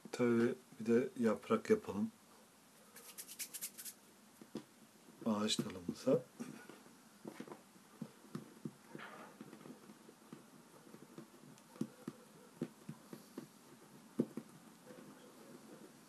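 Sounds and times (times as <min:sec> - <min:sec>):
fingers tapping and rolling dough: 0:05.5 - 0:16.0.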